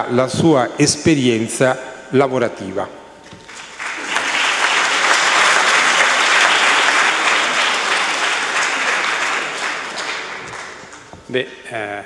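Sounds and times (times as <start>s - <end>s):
large audience applauding: 3.4s - 11.2s.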